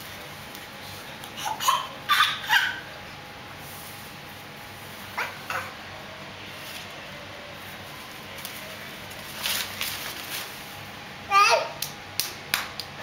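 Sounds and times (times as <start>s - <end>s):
leaves rustling: 7.6s - 10.9s.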